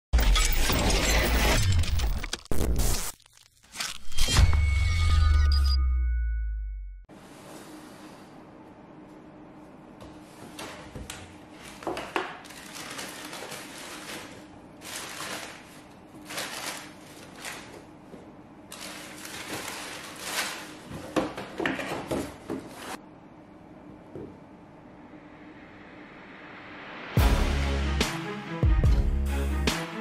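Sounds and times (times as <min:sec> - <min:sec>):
tissue paper crinkling: 0:12.4 - 0:17.8, 0:18.7 - 0:21.0.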